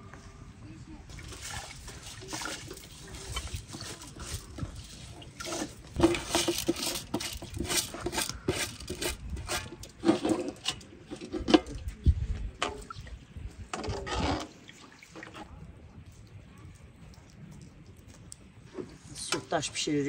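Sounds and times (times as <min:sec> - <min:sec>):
splashing and dripping: 0:01.1 - 0:07.9, 0:14.5 - 0:19.6
wet rice scraped from basin: 0:01.1 - 0:10.7
metal spoon scraping pot: 0:02.0 - 0:11.8, 0:13.8 - 0:14.6.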